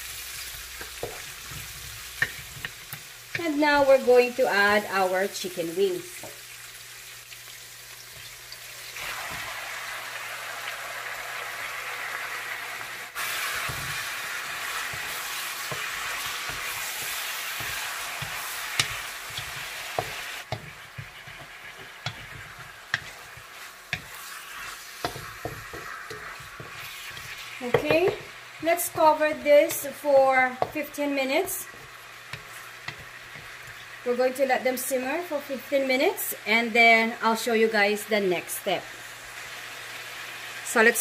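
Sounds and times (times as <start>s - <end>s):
chicken sizzling in a wok: 0.0s - 41.0s
utensil knocking and scraping pan: 13.6s - 24.3s, 25.0s - 33.6s.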